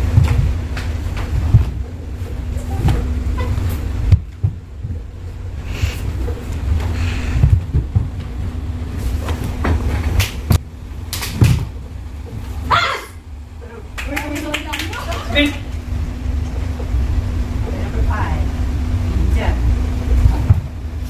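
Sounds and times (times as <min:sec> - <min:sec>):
bare feet thumping on wooden floor: 0:00.0 - 0:01.9, 0:04.0 - 0:05.0, 0:07.3 - 0:08.4
low rumble and hum of hall: 0:00.0 - 0:21.0.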